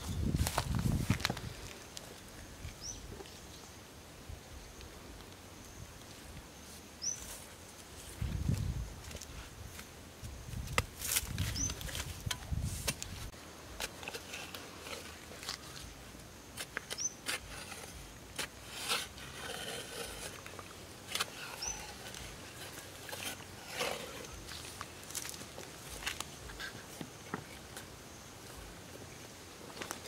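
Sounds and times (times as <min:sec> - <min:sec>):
clicks and scrapes of earth: 0:10.5 - 0:27.8.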